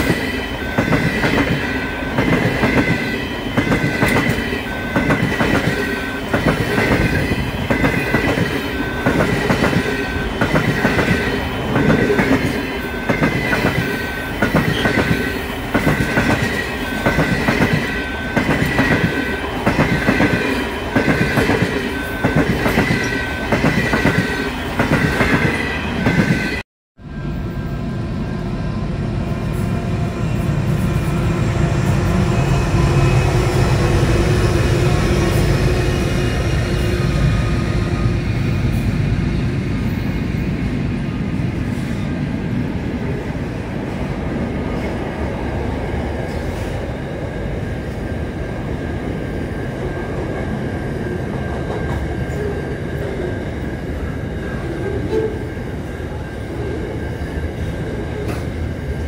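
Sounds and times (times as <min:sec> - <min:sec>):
squealing train wheels: 0:00.0 - 0:40.5
freight train wheels rumbling: 0:00.0 - 0:59.0
passenger train passing: 0:00.0 - 0:59.0.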